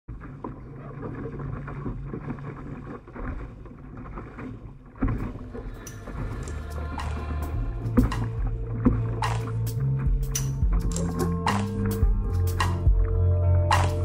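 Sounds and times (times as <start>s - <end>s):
water splashing along hull: 0.1s - 14.0s.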